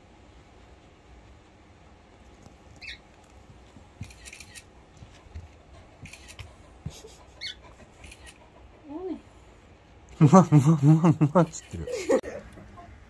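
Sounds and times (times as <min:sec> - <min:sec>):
dog moving on carpet: 0:04.8 - 0:07.1.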